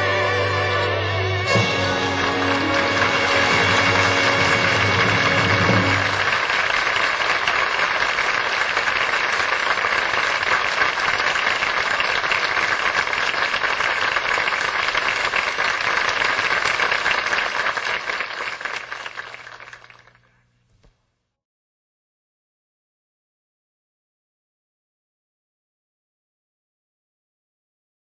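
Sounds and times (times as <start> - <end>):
audience applauding: 0.0 - 20.3.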